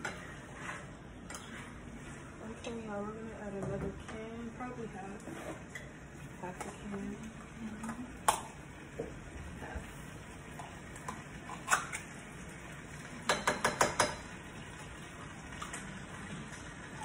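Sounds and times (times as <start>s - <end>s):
can tapping against pan: 13.3s - 14.3s.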